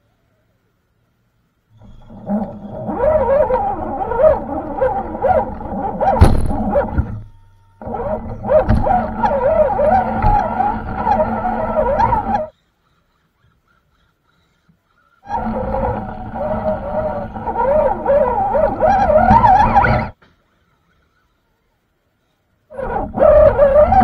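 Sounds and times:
small electric motor whining: 1.7 - 12.5, 15.2 - 20.2, 22.7 - 24.0
rumbling and rattling over rocks: 1.8 - 12.5, 15.3 - 20.2.

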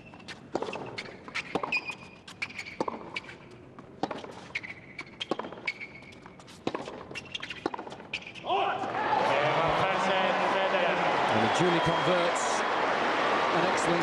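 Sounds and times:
shoe squeaks on court: 0.0 - 8.5
racket striking tennis ball: 0.5 - 8.4.

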